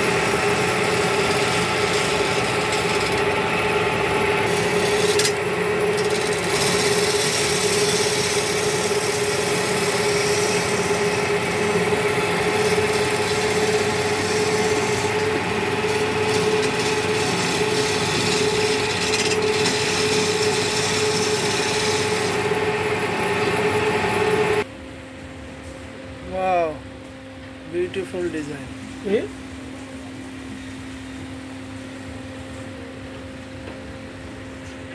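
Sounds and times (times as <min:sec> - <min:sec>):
chisel scraping wood: 0:00.0 - 0:24.6
wood lathe humming: 0:00.0 - 0:24.7.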